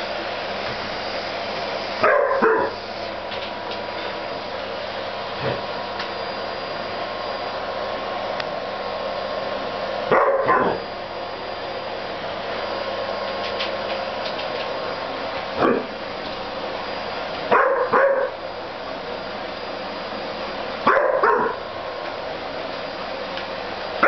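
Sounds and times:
vacuum cleaner whining: 0:00.0 - 0:24.0
dog barking: 0:02.0 - 0:02.8, 0:10.1 - 0:10.8, 0:17.5 - 0:18.3, 0:20.8 - 0:21.6.

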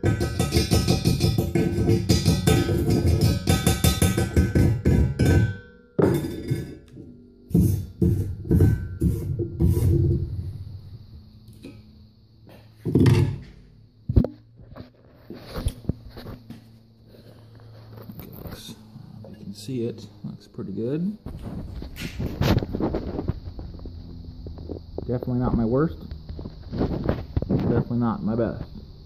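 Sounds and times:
ringing hammer strikes on metal: 0:00.0 - 0:09.6
metallic chipping and scrubbing: 0:00.0 - 0:10.8.

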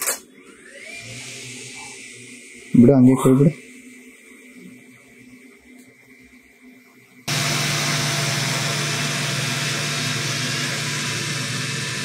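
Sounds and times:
drone propellers buzzing: 0:07.3 - 0:12.0.

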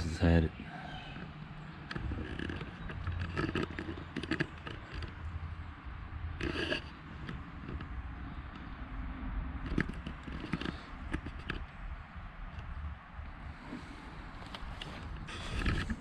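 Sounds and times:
loud scrape: 0:06.4 - 0:07.0.

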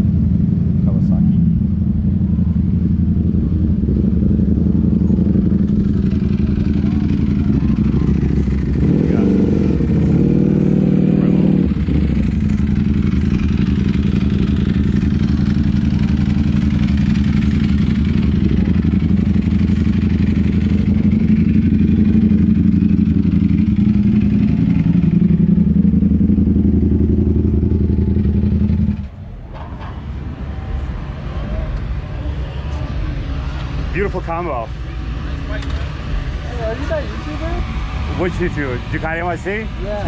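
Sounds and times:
motorcycle engine idling: 0:00.0 - 0:29.2.

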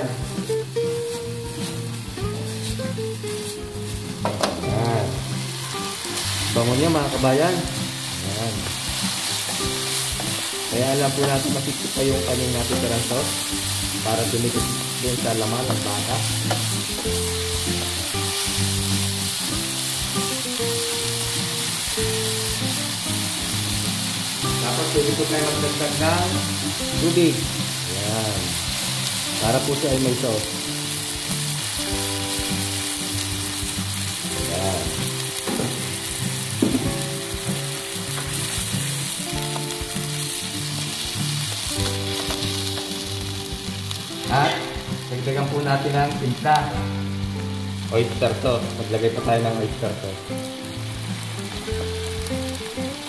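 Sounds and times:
meat and pepper sizzling in pan: 0:00.0 - 0:53.0
music of held low notes: 0:00.0 - 0:53.0
wooden spatula knocking in pan: 0:04.2 - 0:04.6, 0:35.4 - 0:37.2.

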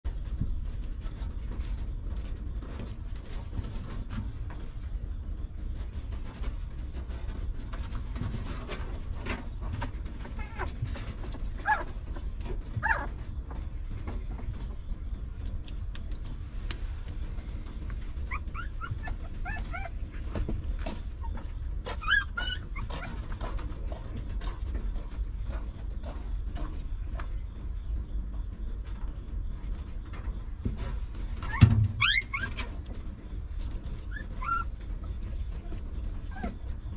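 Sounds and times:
puppies whimpering and squeaking: 0:05.9 - 0:14.9, 0:17.6 - 0:26.1, 0:31.2 - 0:36.9.

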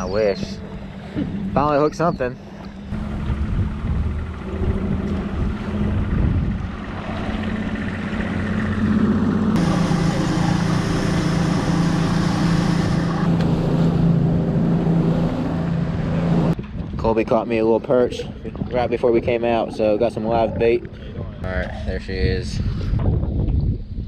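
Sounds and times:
outboard motor running: 0:00.0 - 0:16.6
rush of wind and water: 0:00.0 - 0:24.0.

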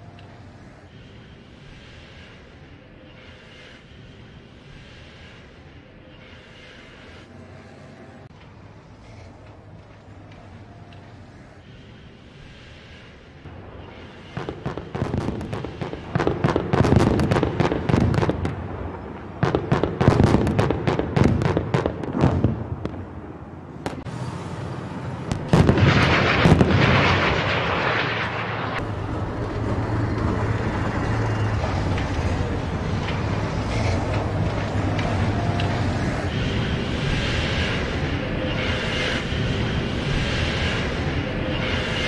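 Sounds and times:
armoured vehicle engine droning: 0:00.0 - 0:16.2, 0:23.2 - 0:42.0
loud rush: 0:11.6 - 0:42.0.

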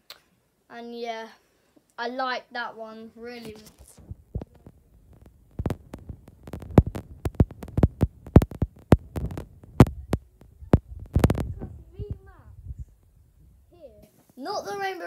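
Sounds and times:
low rumble: 0:04.0 - 0:13.7.

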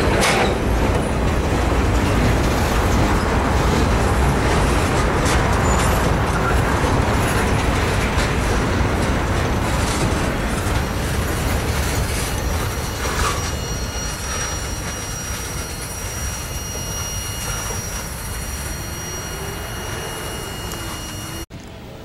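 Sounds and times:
freight train rumbling past: 0:00.0 - 0:22.0
high-pitched wheel squeal: 0:09.5 - 0:21.5.

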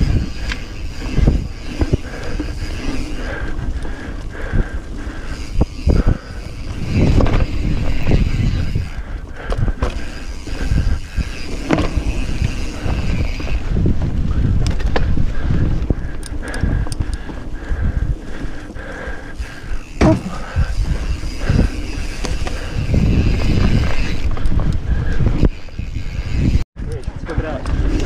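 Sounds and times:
wind rushing over microphone: 0:00.0 - 0:28.0
bike knocks and rattles: 0:06.5 - 0:16.3, 0:19.8 - 0:28.0.

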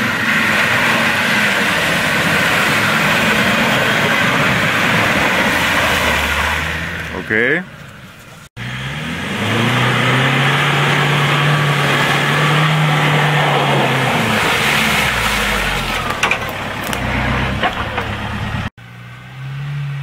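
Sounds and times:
vehicle engine driving through mud: 0:00.0 - 0:20.0
sharp clicks and knocks: 0:16.1 - 0:18.2.

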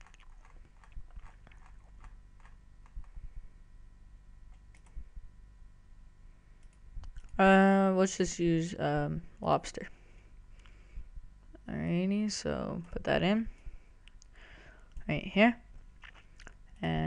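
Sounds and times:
low steady hum: 0:00.0 - 0:17.0
computer mouse clicks: 0:04.5 - 0:05.0, 0:06.6 - 0:07.4.

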